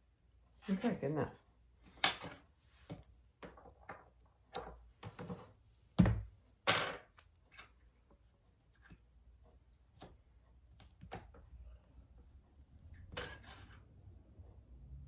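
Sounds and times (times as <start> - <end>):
thump on table: 6.0 - 6.2.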